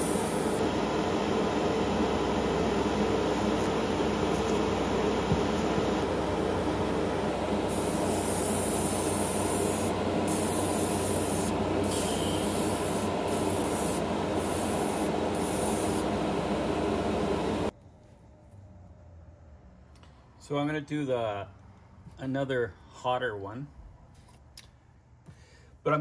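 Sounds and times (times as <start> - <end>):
airbrush hissing: 0.0 - 0.6, 7.7 - 16.2
steady motor hum: 0.0 - 17.7.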